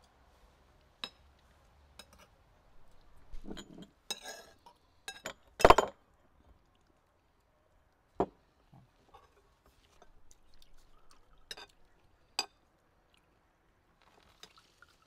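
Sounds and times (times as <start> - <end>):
cutlery clinking on plates: 2.0 - 2.3, 3.4 - 5.9.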